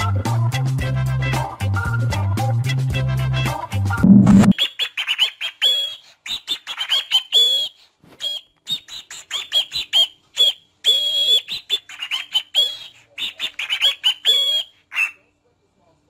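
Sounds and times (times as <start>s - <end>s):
cockatiel chirping and whistling: 4.3s - 15.2s.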